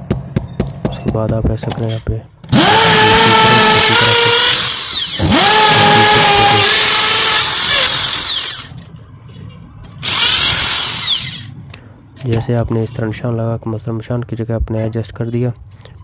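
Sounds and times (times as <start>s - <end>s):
electric drill boring into concrete: 2.5s - 8.7s, 10.0s - 11.5s.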